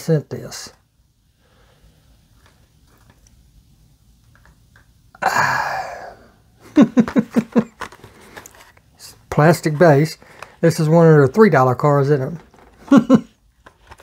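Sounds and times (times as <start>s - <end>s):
man breathy burst: 5.2s - 6.5s
man laughing: 5.2s - 7.8s, 12.8s - 13.4s.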